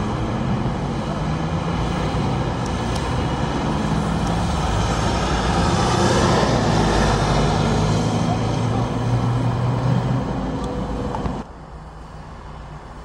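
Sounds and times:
bus engine hum: 0.0 - 13.0
tyres rushing on wet road: 0.0 - 13.0.

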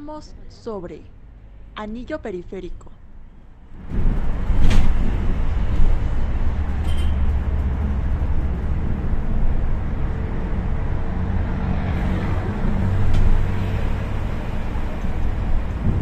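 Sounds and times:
road noise: 0.0 - 16.0
bus engine drone: 3.2 - 16.0.

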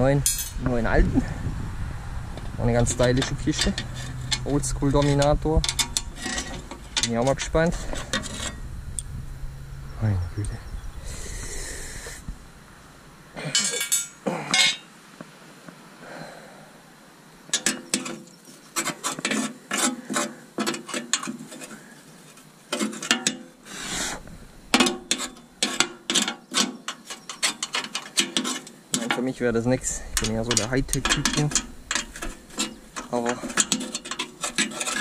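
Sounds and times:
rapid mechanical clicking and scraping: 2.8 - 9.1, 23.8 - 35.0.

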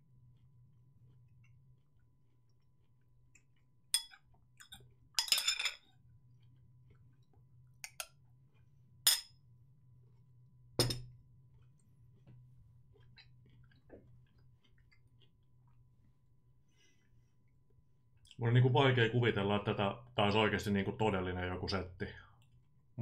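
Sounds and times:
cutlery clinking against a dish: 4.0 - 5.9, 7.8 - 8.2.

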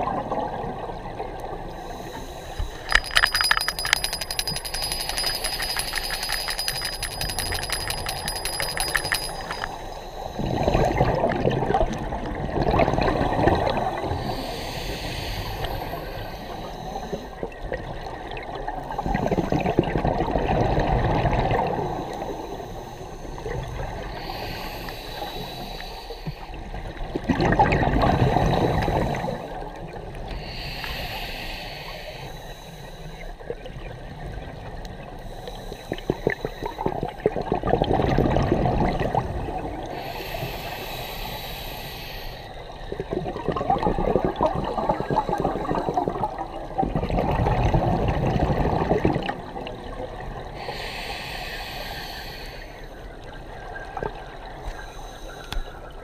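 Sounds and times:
regulator inhale hiss: 1.7 - 2.9, 14.0 - 17.5, 22.0 - 26.6, 30.3 - 33.4, 35.2 - 36.9, 39.9 - 42.9, 50.6 - 53.1, 54.7 - 55.9
exhaled air bubbling: 36.2 - 40.8, 42.9 - 51.3.

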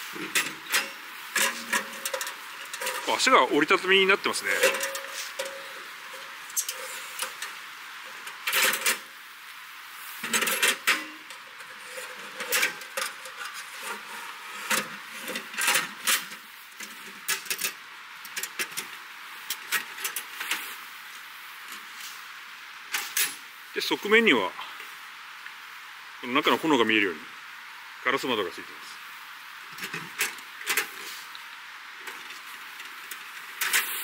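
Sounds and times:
steady hiss: 0.0 - 34.0
metal clicks and clanks of stove: 0.2 - 3.1, 4.6 - 7.6, 10.2 - 20.6.

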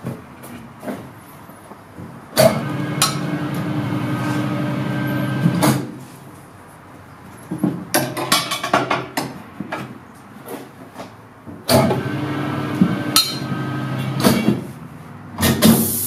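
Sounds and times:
tyre changer motor running: 2.4 - 5.8, 11.7 - 16.0.

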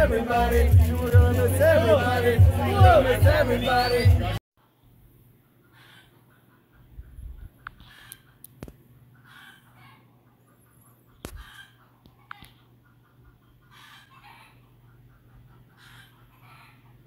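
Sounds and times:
faint chicken calls: 4.7 - 17.0.

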